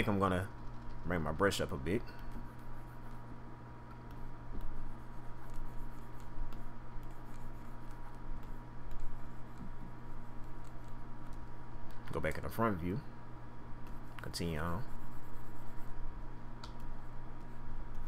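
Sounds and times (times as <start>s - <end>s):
low electrical hum: 0.0s - 18.0s
computer mouse and keyboard clicks: 10.4s - 12.2s.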